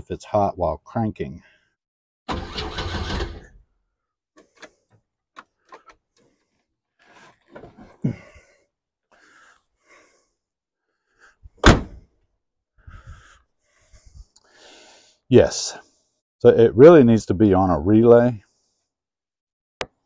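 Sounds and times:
car engine cranking: 2.3s - 3.6s
car door shutting: 11.6s - 12.0s.

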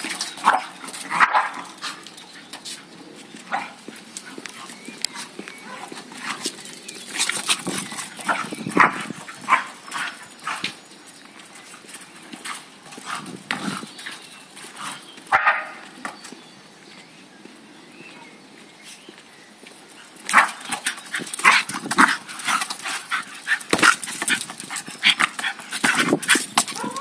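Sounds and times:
dog barking and yapping: 0.4s - 1.7s, 15.3s - 15.8s, 26.7s - 27.0s.

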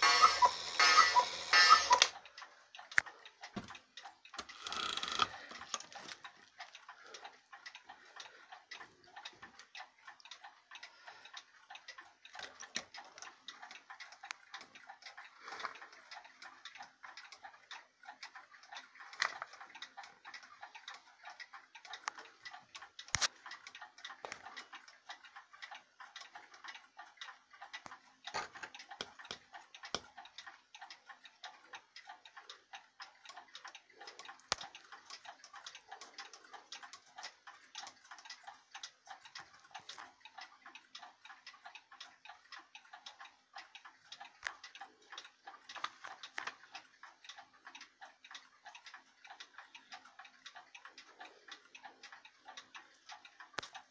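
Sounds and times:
cuckoo clock ticking: 0.0s - 53.9s.

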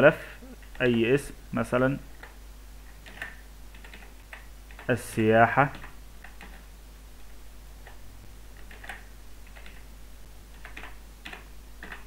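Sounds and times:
faint steady hum: 0.0s - 12.0s
keyboard keys clicking: 3.0s - 4.9s, 8.6s - 9.8s, 10.5s - 12.0s.

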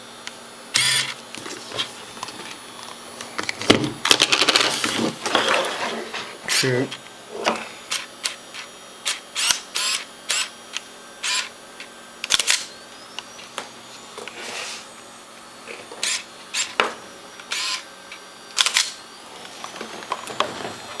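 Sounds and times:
camera shutter clacking: 0.8s - 1.2s, 12.2s - 12.7s, 18.6s - 19.0s.

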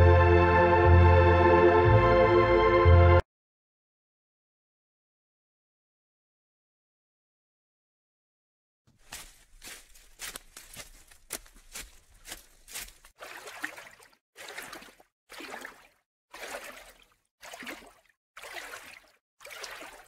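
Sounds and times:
water lapping over rocks: 12.4s - 20.0s.

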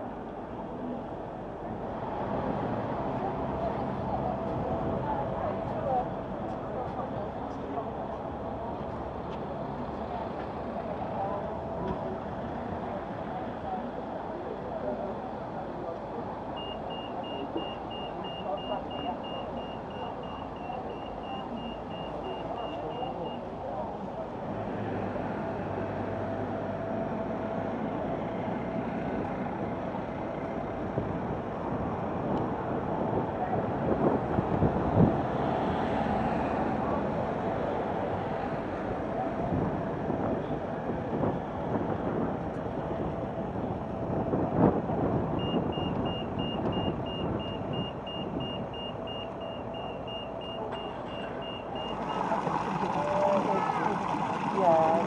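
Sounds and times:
cars driving past: 0.0s - 55.0s
low engine hum: 0.0s - 55.0s
traffic and street noise: 0.0s - 55.0s
crossing signal beeping: 16.6s - 23.5s, 45.4s - 52.9s.

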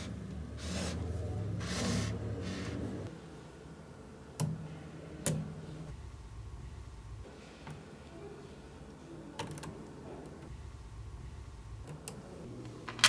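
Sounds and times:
magnetic balls sliding on table: 0.0s - 3.1s.

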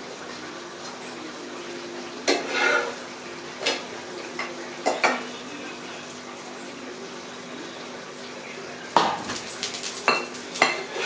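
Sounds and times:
metal ladle scraping cookware: 2.3s - 3.0s
ladle clinking: 9.0s - 11.0s.

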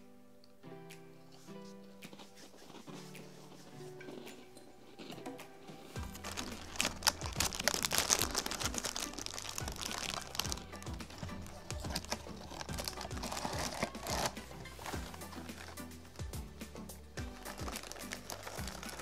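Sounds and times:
background music: 0.0s - 19.0s
plastic wrapper crinkling: 6.0s - 16.3s, 17.2s - 19.0s.

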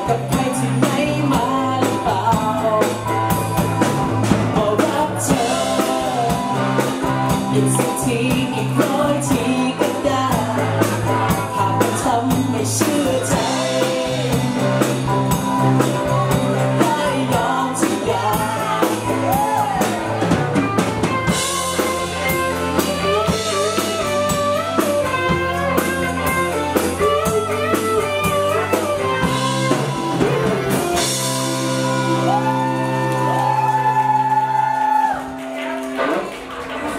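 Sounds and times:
person singing: 0.0s - 35.7s
electric guitar lead bending notes: 0.0s - 36.7s
pop-rock band playing: 0.0s - 36.9s.

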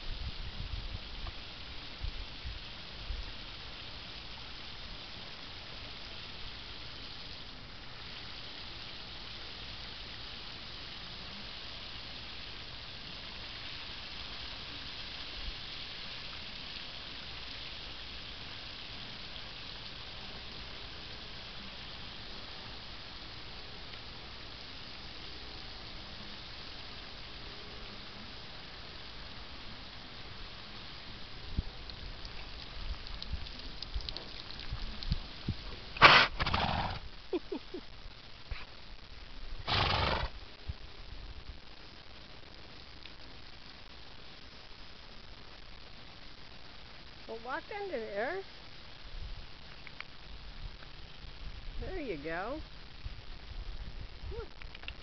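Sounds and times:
hiss of water spray: 0.0s - 39.0s, 39.6s - 41.1s.

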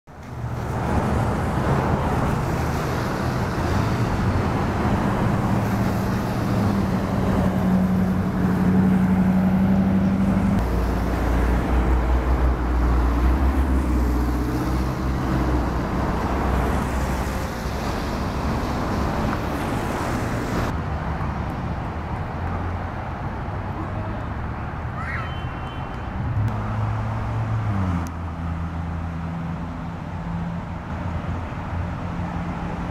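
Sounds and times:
car engines passing: 0.1s - 32.9s
traffic hiss: 0.2s - 9.3s.

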